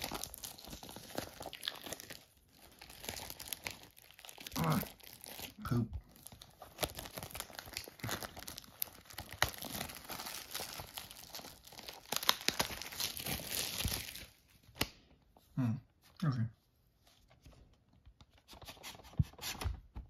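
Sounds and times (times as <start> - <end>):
plastic wrap crackling: 0.0 - 15.0.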